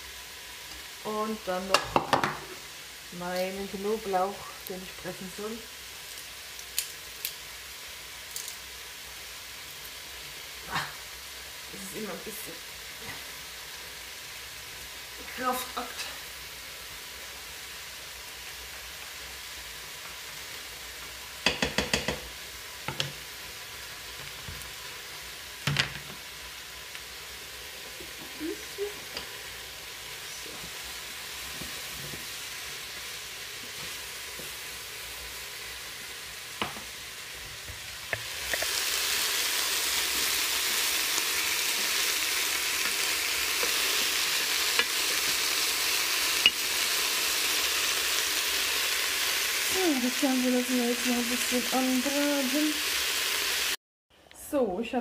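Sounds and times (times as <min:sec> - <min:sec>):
food sizzling in a pot: 0:00.0 - 0:53.8
wooden spoon knocking pot: 0:21.4 - 0:22.3.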